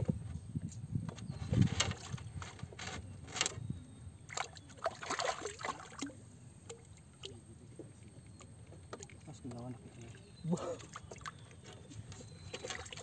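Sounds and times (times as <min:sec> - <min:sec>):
water sloshing and splashing: 0:04.3 - 0:07.4, 0:08.7 - 0:13.0.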